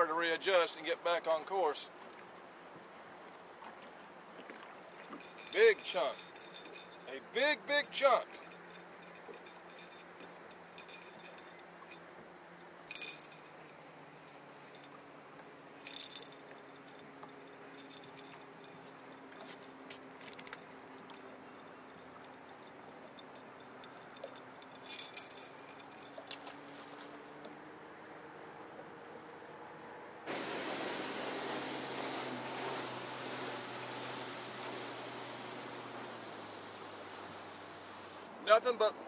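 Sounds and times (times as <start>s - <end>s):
fishing tackle rattling: 4.9s - 7.1s, 7.8s - 15.0s, 15.7s - 27.4s.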